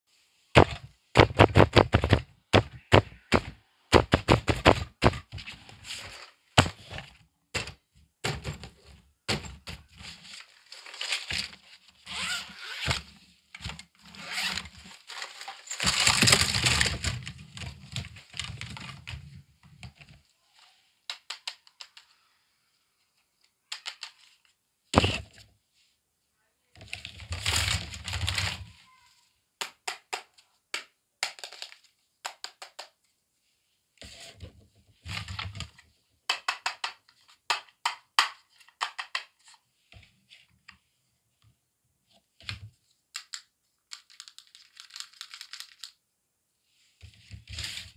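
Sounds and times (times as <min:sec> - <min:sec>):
plastic toy pieces clicking: 0:21.1 - 0:22.1, 0:23.7 - 0:24.2, 0:36.3 - 0:39.4, 0:43.1 - 0:46.0.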